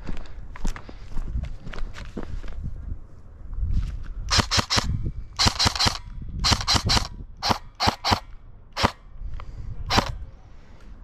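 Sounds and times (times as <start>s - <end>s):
airsoft gun shots: 4.3s - 9.0s, 9.9s - 10.2s.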